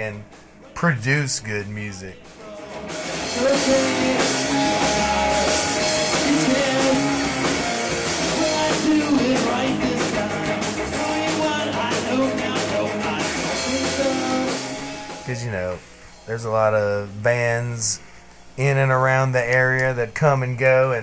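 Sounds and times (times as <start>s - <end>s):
electric bass: 0.0s - 18.0s
drum kit with cymbals: 0.0s - 18.9s
electric guitar: 1.9s - 16.6s
person singing lead: 2.2s - 7.6s, 8.2s - 15.7s.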